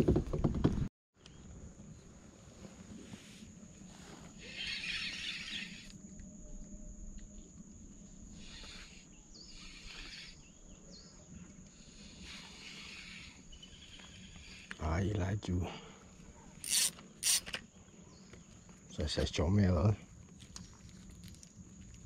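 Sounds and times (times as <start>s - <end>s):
faint bird chirps: 8.3s - 14.7s.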